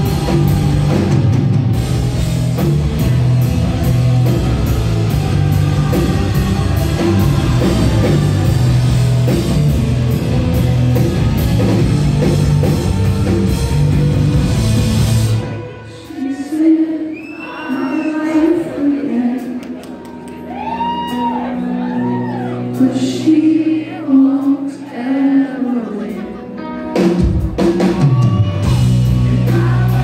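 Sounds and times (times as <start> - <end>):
drum kit with cymbal hits: 0.0 - 15.5, 27.0 - 30.0
bass guitar: 0.0 - 16.0, 26.4 - 30.0
electric guitars: 0.0 - 16.2.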